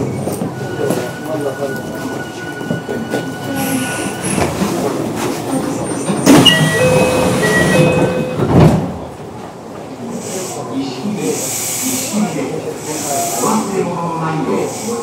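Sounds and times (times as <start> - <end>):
train rumble: 0.0 - 15.0.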